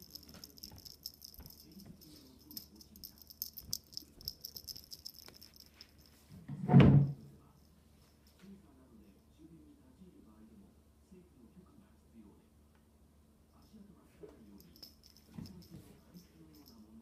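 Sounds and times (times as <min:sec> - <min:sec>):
cat toy rattling on wooden floor: 0:00.0 - 0:06.2.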